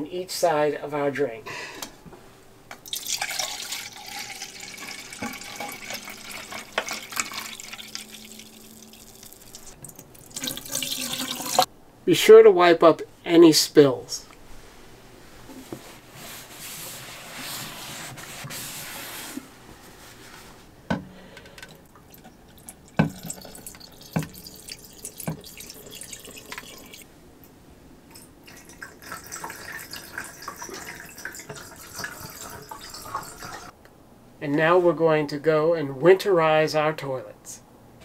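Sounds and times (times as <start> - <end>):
liquid trickling and splashing into drain: 2.8 - 11.7, 21.8 - 27.0, 28.1 - 33.7
plastic cup and jug knocks: 23.0 - 23.4.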